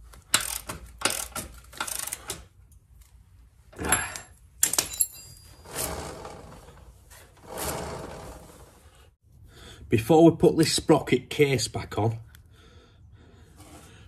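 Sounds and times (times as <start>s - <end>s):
sharp metal clinks: 3.9s - 5.6s
wheel whirring: 5.4s - 9.0s.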